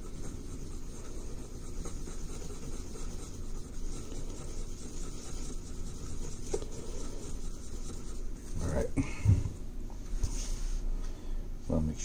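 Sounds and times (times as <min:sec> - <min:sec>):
stick scratching and stirring epoxy: 0:00.0 - 0:08.9.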